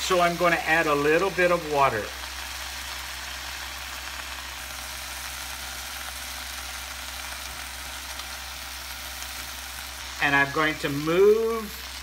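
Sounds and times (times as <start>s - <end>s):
grill fan humming: 0.0s - 12.0s
liquid sizzling on a griddle: 0.0s - 12.0s.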